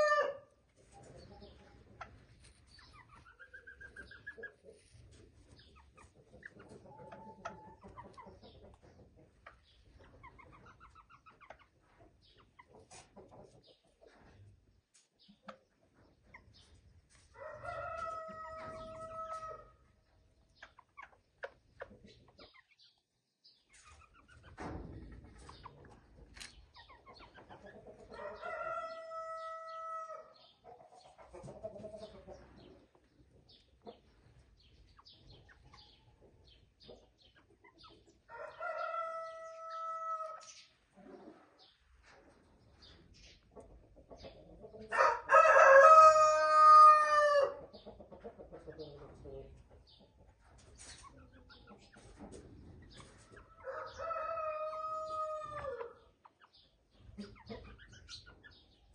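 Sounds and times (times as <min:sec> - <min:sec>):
roosters crowing: 0:00.0 - 0:00.5, 0:17.3 - 0:19.8, 0:28.2 - 0:30.3, 0:38.3 - 0:40.4, 0:44.9 - 0:47.6, 0:53.6 - 0:56.0
soft chicken clucks: 0:00.0 - 0:58.9.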